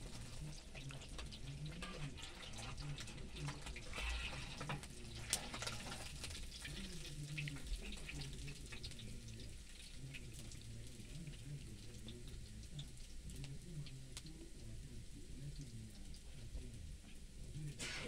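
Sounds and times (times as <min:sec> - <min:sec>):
fire crackling and popping: 0:00.0 - 0:14.3
fish sizzling in a pan: 0:00.0 - 0:16.4.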